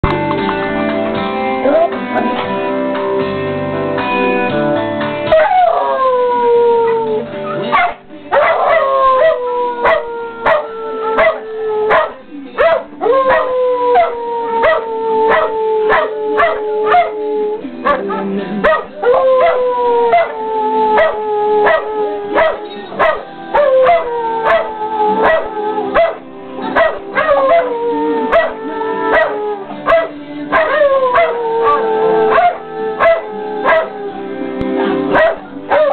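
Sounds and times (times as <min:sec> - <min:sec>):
tv theme music: 0:00.0 - 0:35.9
dogs howling: 0:05.3 - 0:35.9
dog yipping and barking: 0:07.8 - 0:08.6.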